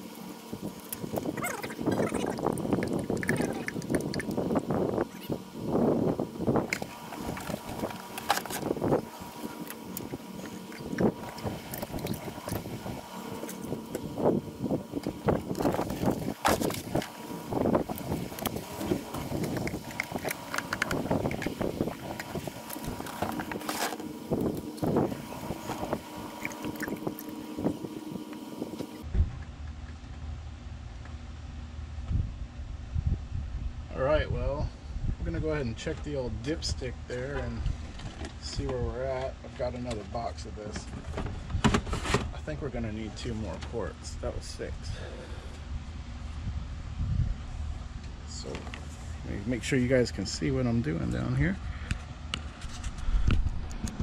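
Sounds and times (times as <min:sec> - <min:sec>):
low steady rumble: 0:00.0 - 0:54.0
oil glugging from a bottle: 0:00.8 - 0:04.5, 0:15.0 - 0:29.0.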